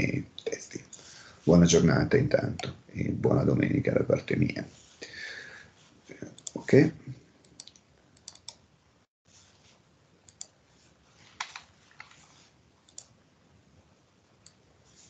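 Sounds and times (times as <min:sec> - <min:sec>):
mouse and keyboard clicks: 0:07.5 - 0:08.6, 0:11.4 - 0:12.2.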